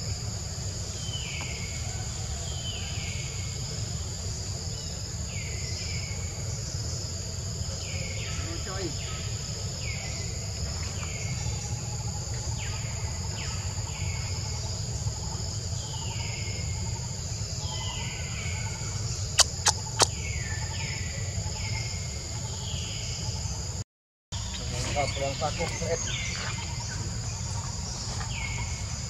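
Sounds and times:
high insect buzz: 0.0s - 23.8s
sharp clicks: 19.4s - 20.1s.

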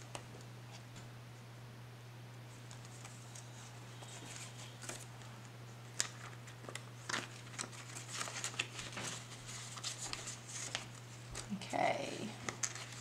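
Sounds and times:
paper rustling and sliding: 2.5s - 5.2s, 5.9s - 11.5s, 12.4s - 13.0s.

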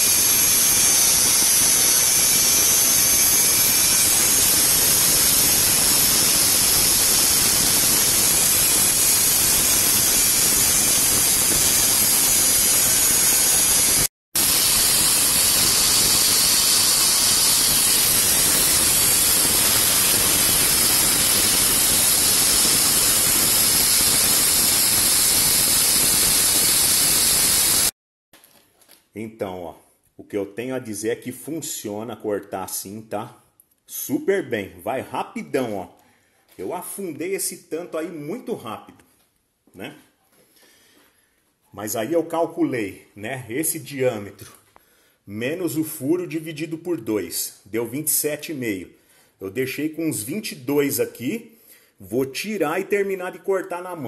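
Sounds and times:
angle grinder cutting metal: 0.0s - 27.9s.

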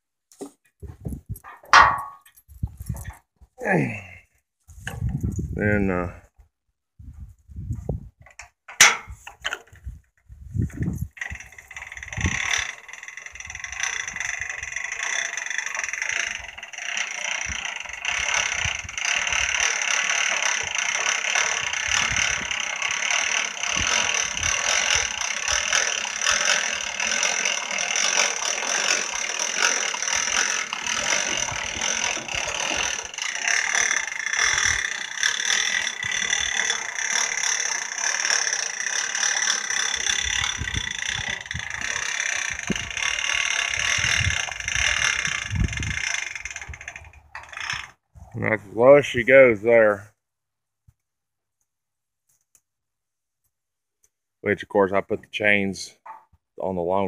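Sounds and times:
winch ratchet clicking: 11.0s - 48.0s.

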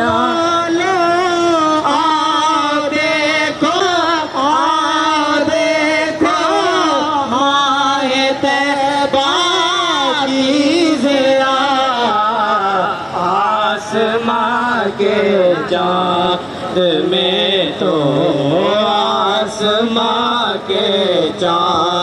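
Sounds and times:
man singing devotional poem: 0.0s - 22.0s.

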